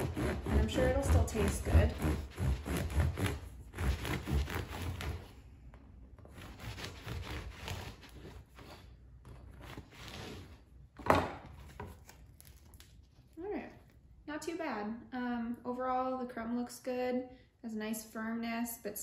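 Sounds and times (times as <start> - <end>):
bread knife sawing crust: 0.0 - 5.4, 6.2 - 10.6.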